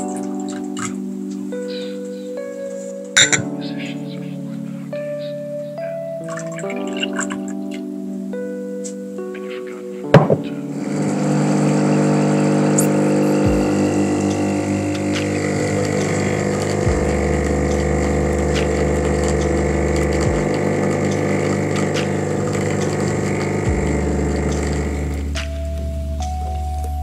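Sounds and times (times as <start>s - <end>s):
espresso machine pump humming: 10.8s - 25.3s
coffee pouring into cups: 10.9s - 25.2s.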